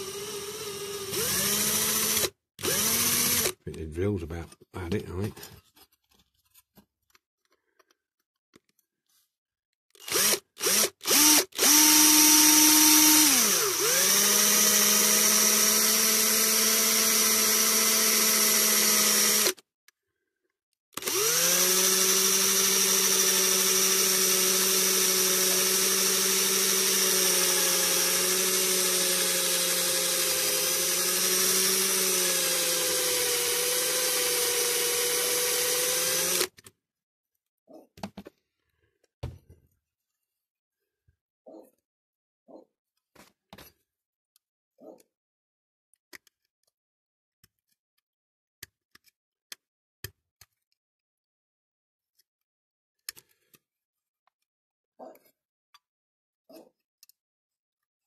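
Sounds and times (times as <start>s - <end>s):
cordless drill motor whine: 0.0s - 3.6s, 10.0s - 19.6s, 21.0s - 36.5s.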